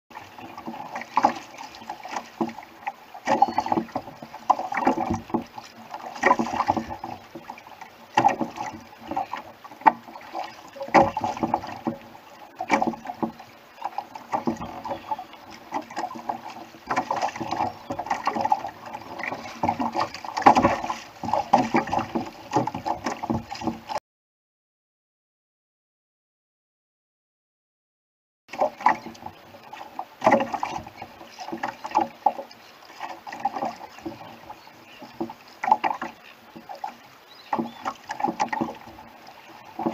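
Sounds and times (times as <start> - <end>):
water splashing against a hull: 0.1 - 24.0, 28.5 - 39.9.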